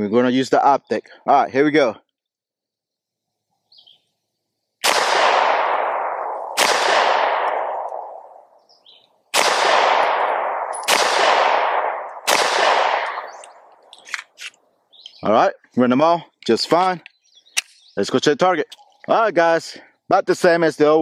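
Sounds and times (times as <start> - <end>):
pistol shots: 4.8 - 8.4, 9.3 - 13.7.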